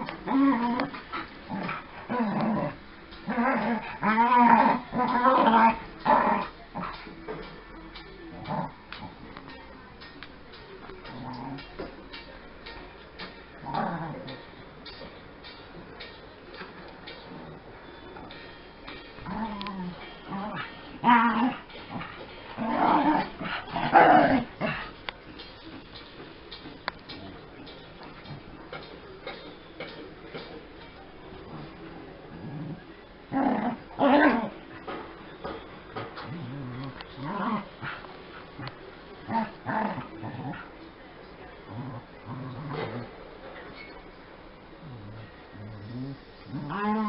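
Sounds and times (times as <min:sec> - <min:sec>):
dogs growling while playing: 0:00.0 - 0:07.1, 0:08.3 - 0:09.3, 0:11.0 - 0:11.9, 0:13.6 - 0:14.4, 0:19.2 - 0:25.0, 0:31.5 - 0:34.9, 0:36.0 - 0:40.7, 0:41.6 - 0:43.2, 0:44.8 - 0:47.0.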